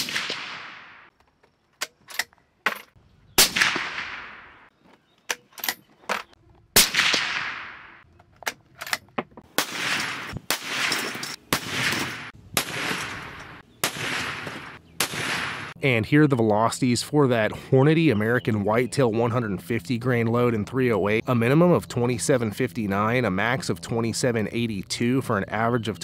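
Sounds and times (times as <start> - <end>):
suppressed rifle shots echoing: 0.0 - 1.1, 3.4 - 4.7, 6.8 - 8.0, 9.6 - 15.8
metallic clicks of rifle bolt: 1.8 - 2.4, 8.0 - 9.2.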